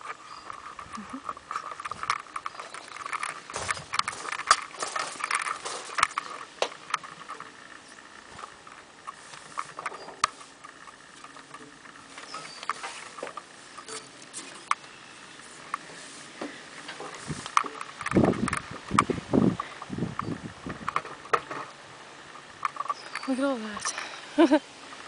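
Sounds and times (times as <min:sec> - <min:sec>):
footsteps crunching on ballast: 0:00.0 - 0:21.4.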